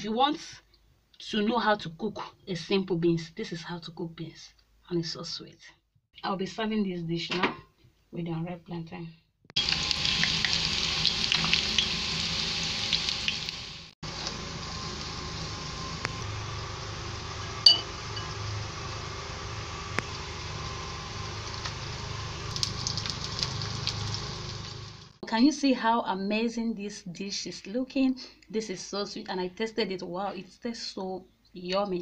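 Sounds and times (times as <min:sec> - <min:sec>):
plantain frying in hot oil: 0:09.6 - 0:25.2.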